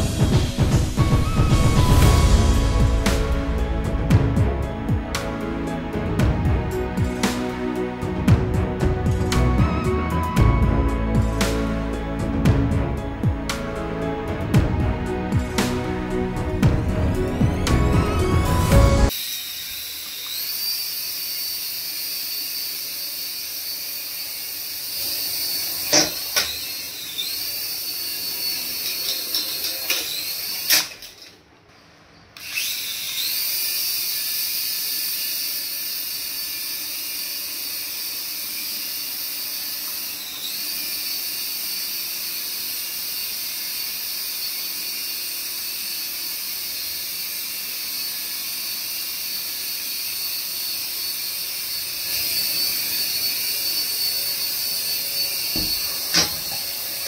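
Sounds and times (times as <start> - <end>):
toy helicopter motors whining: 18.6 - 31.4, 32.3 - 57.0.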